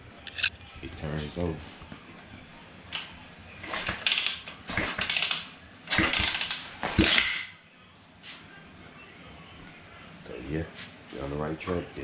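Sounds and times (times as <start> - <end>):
motorbike kickstart turning engine: 3.6 - 7.2.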